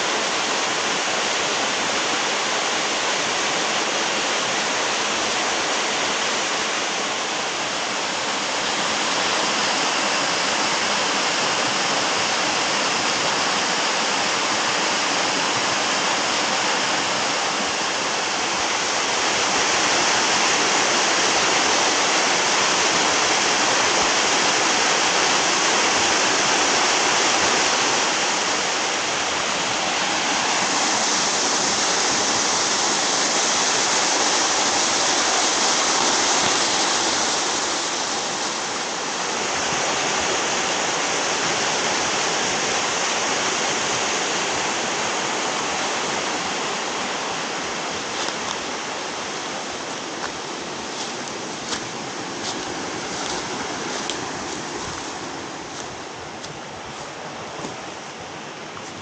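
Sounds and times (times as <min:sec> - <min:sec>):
small waterfall rushing onto rocks: 0:00.0 - 0:59.0.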